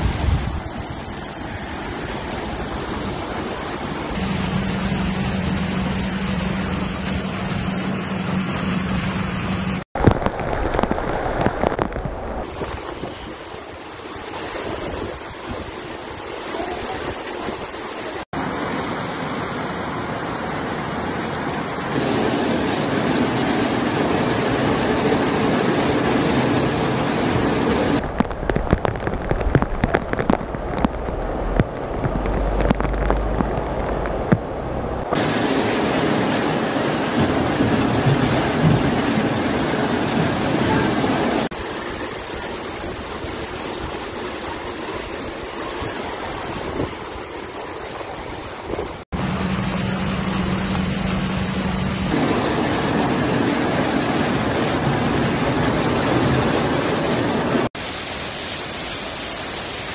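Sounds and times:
wind on microphone: 0.0 - 2.9
floodwater rushing: 0.0 - 59.9
rain: 0.0 - 59.9.

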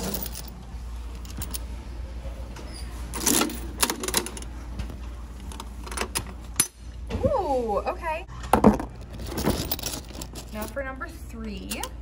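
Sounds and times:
coins into vending machine: 0.0 - 0.6, 3.1 - 4.5, 8.6 - 12.0.

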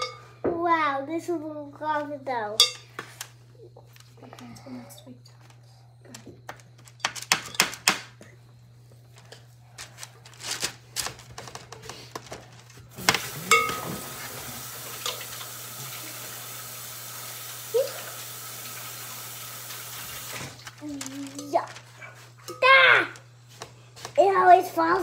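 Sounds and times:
steady hiss: 12.8 - 21.0
spoon scraping glass bowl: 13.4 - 14.2.

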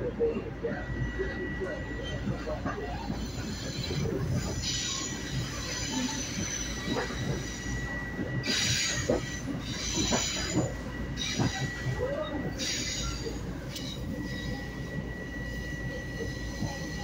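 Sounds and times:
passing train: 0.0 - 17.0
train rumble: 0.0 - 17.0
train wheel clicks: 8.4 - 14.4.

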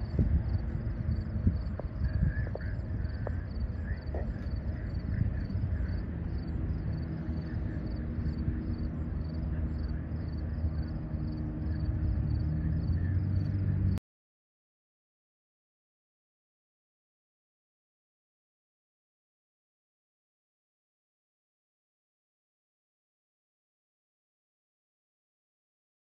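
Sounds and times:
crickets chirping: 0.0 - 14.0
low outdoor rumble: 0.0 - 14.0.

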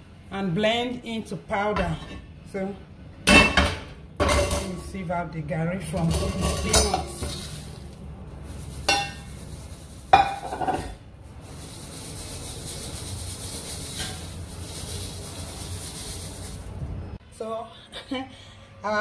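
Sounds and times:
metal pot clanking: 6.0 - 7.7, 8.9 - 9.3, 10.1 - 11.0
grains hissing through mesh: 7.2 - 10.6, 11.2 - 17.2.

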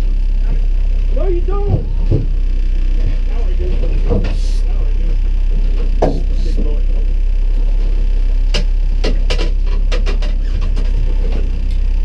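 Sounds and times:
boat low rumble: 0.0 - 12.0
sharp knocks and clicks: 1.6 - 2.4, 5.9 - 6.4, 8.5 - 11.8.

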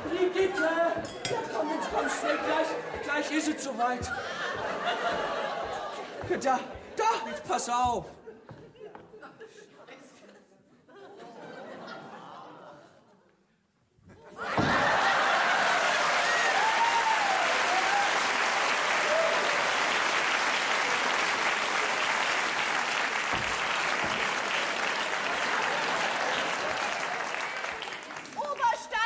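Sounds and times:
body falling on stage floor: 14.1 - 15.2
audience applauding: 14.7 - 29.0.

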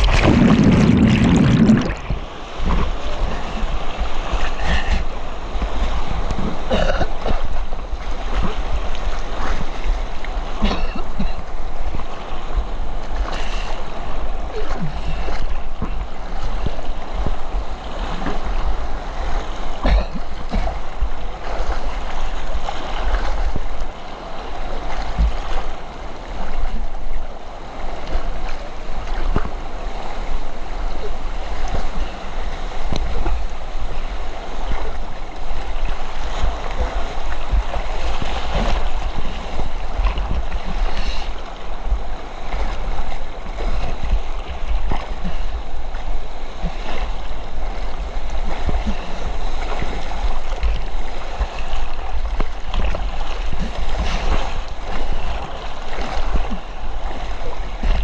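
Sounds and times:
low rumble: 0.0 - 4.0
water splashing against float: 0.0 - 5.0.

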